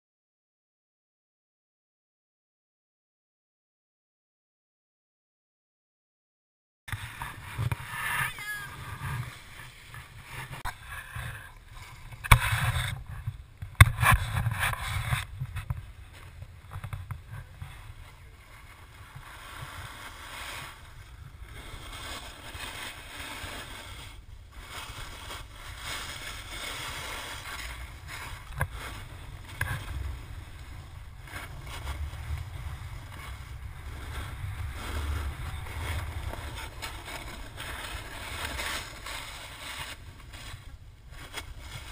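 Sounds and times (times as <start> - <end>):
skis scraping over snow: 6.9 - 41.9
wind buffeting microphone: 6.9 - 41.9.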